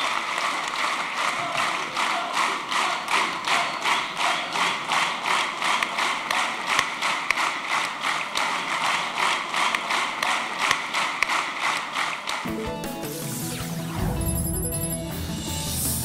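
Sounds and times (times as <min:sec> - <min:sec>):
audience clapping in unison: 0:00.0 - 0:12.6.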